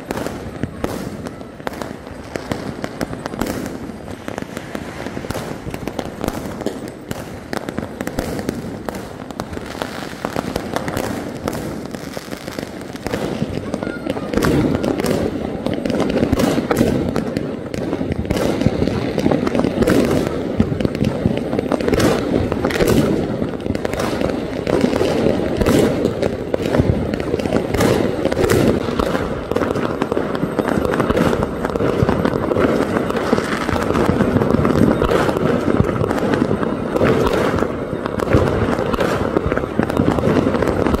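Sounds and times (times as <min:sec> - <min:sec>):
crowd voices din: 0:00.0 - 0:04.4, 0:13.2 - 0:16.3
firecrackers bursting: 0:00.0 - 0:41.0.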